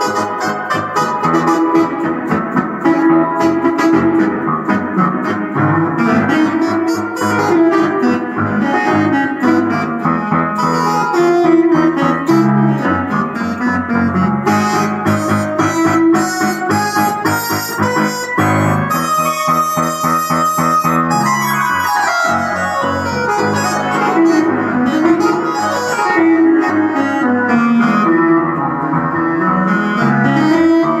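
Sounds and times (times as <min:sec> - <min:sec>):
digital piano playing fast: 0:00.0 - 0:31.0
electronic keyboard playing: 0:00.0 - 0:31.0.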